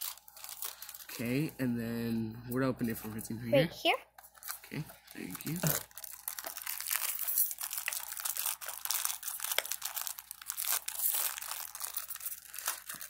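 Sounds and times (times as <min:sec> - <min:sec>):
plastic wrapper crinkling: 0:00.0 - 0:01.4, 0:04.2 - 0:13.0.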